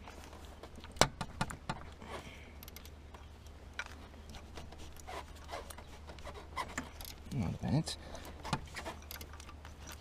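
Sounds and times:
wrench clicking and scraping on bolt: 8.2 - 10.0.

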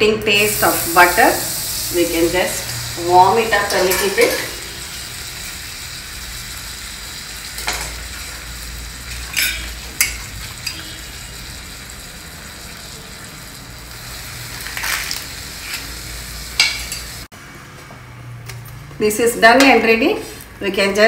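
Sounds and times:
bread sizzling on griddle: 0.4 - 17.3.

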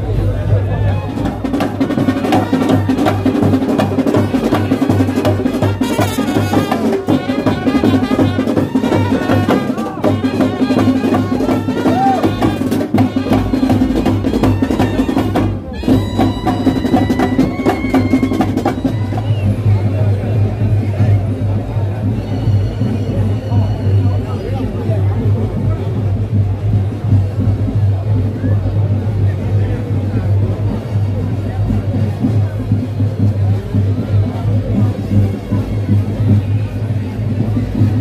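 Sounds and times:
drums beaten in steady rhythm: 0.0 - 38.0
held trumpet notes: 4.1 - 19.3.

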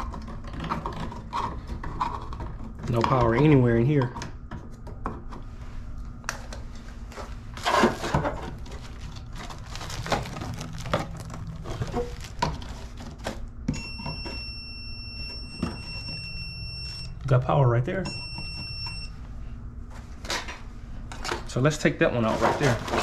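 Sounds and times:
high-pitched voltage tester beep: 13.7 - 17.2, 18.0 - 19.2.

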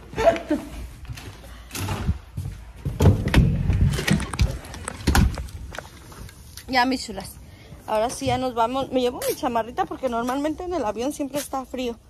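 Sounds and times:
footsteps on stairs: 0.0 - 6.2, 7.7 - 11.5.

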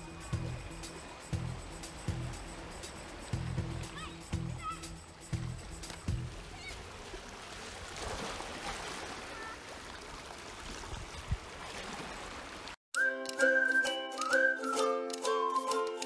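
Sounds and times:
cheerful music with whistled tune: 0.0 - 2.3, 12.9 - 16.0.

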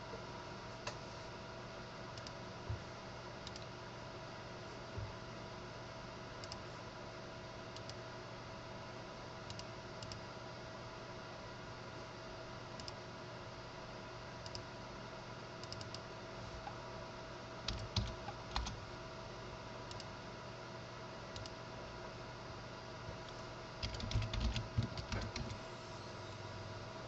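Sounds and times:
faint electrical hum: 0.0 - 27.0
computer keyboard typing: 17.7 - 18.8, 23.8 - 25.6.

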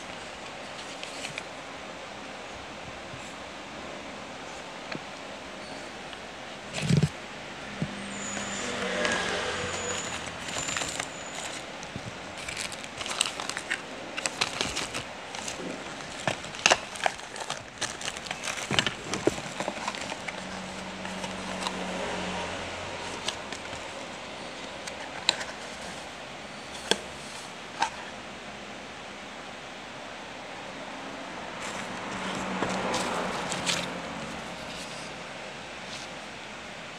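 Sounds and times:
packaging rustling and crinkling: 0.0 - 1.6, 6.7 - 7.2, 8.1 - 22.0, 23.0 - 28.0, 31.6 - 35.1.

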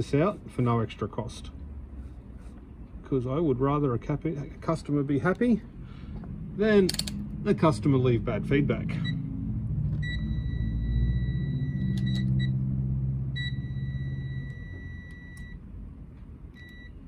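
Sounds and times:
multimeter continuity beeps: 10.0 - 12.6, 13.3 - 15.6, 16.5 - 17.0.

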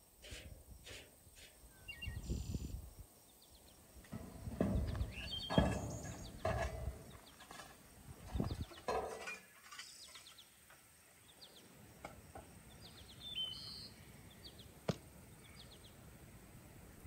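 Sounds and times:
metal spade scraping ground: 0.2 - 1.7, 4.1 - 10.6
small birds chirping: 0.5 - 4.1, 4.7 - 7.6, 8.2 - 8.8, 9.7 - 16.1.

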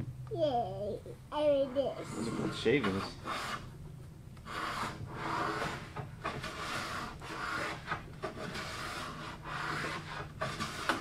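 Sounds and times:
hand plane shaving wood: 4.4 - 11.0.

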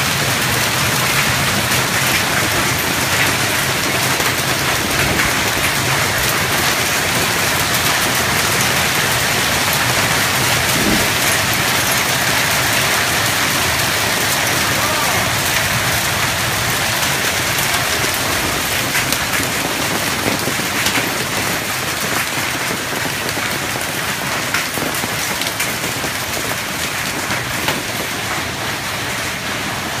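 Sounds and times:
hailstones ticking on hard surfaces: 0.0 - 30.0
rain hiss: 0.0 - 30.0.

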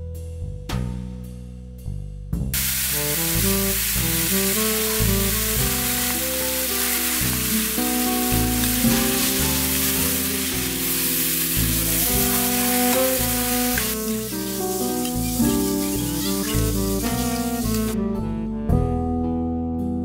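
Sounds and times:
food sizzling in a pan: 2.6 - 18.0
background music: 2.6 - 20.0.

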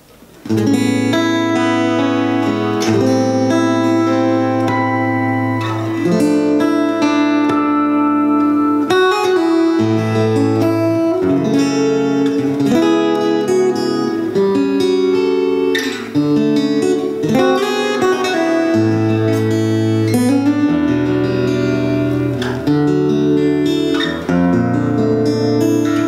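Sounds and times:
fingerstyle acoustic guitar: 0.0 - 26.0.

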